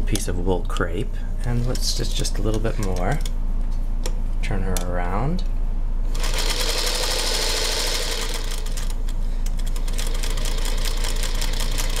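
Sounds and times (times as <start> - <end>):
sewing machine stitching: 6.1 - 9.0, 9.8 - 12.0.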